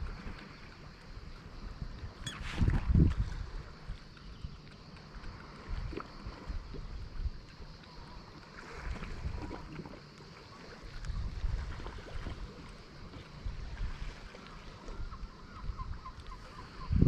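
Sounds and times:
wind buffeting microphone: 0:01.8 - 0:04.6, 0:11.0 - 0:12.6, 0:13.3 - 0:17.0
small waves lapping against stone: 0:02.3 - 0:15.2.

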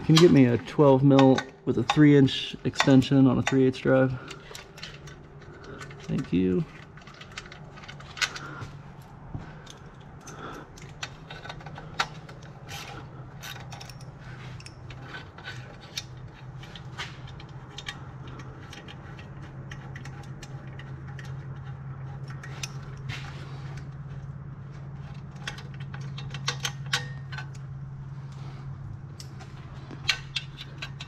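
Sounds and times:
low hum: 0:00.0 - 0:31.0
hand ratchet clicking: 0:25.3 - 0:27.6.

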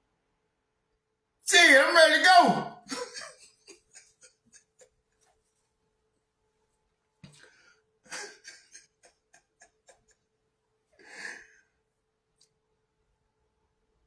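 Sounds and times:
faint steady hum: 0:00.0 - 0:14.0
man breathing close: 0:11.0 - 0:11.8.

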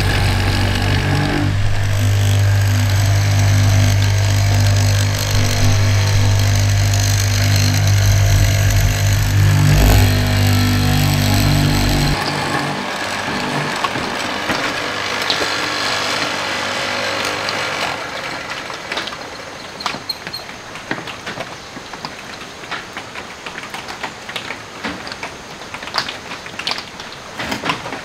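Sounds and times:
chisel scraping and crackling wood: 0:00.0 - 0:16.4
mortiser motor hum: 0:00.0 - 0:19.4.

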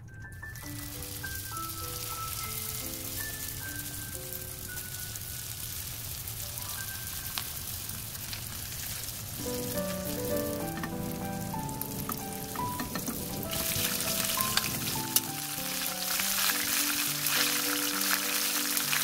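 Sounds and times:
light music with plucked notes: 0:00.0 - 0:05.4, 0:09.4 - 0:19.0
food deep-frying in oil: 0:00.2 - 0:19.0.

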